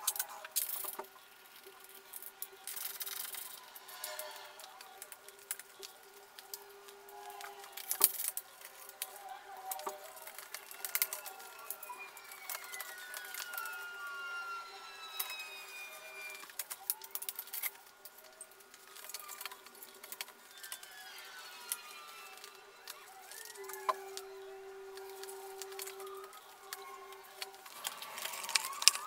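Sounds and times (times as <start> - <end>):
thin sliding squeaks: 2.7 - 29.0.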